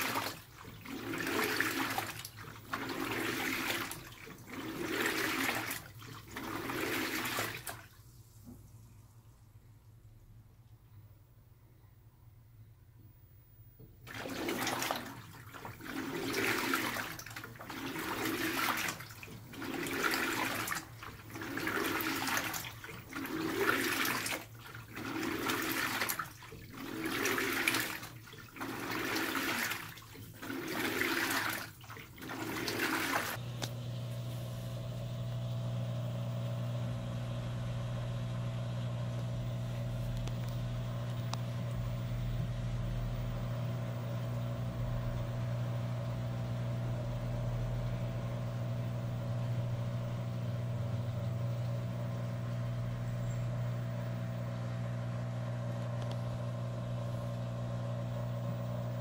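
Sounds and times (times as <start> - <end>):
washer swishing and sloshing: 0.0 - 8.9, 14.0 - 33.4
steady motor hum: 33.3 - 59.0.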